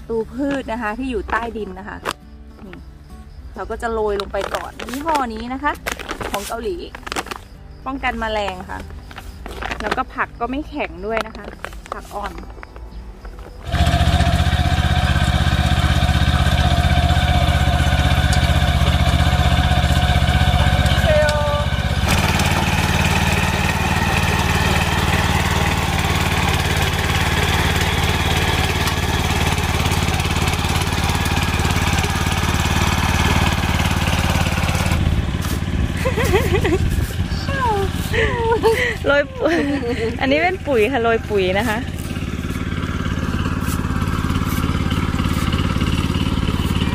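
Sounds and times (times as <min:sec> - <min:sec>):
rotary tiller engine running: 0:04.1 - 0:07.4, 0:08.2 - 0:10.2, 0:11.1 - 0:46.9.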